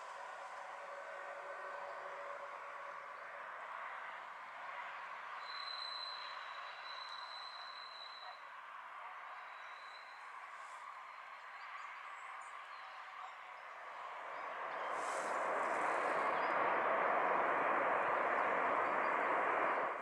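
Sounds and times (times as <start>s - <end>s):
jet engines rushing: 13.8s - 20.0s.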